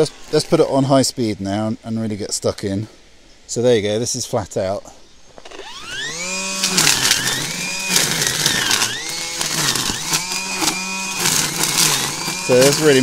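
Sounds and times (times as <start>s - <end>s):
line trimmer whining: 5.4s - 13.0s
trimmer line slashing weeds: 5.5s - 13.0s.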